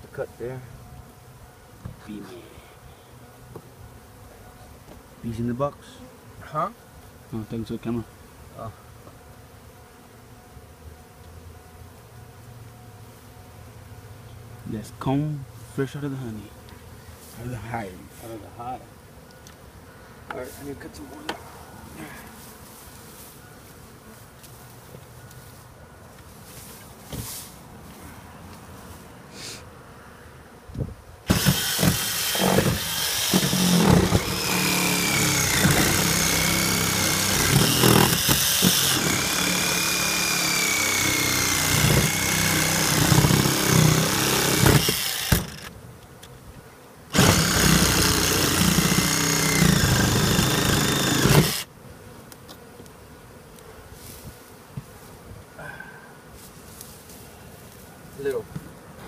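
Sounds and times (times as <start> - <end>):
reciprocating saw cutting wood: 31.3 - 45.7, 47.1 - 51.7.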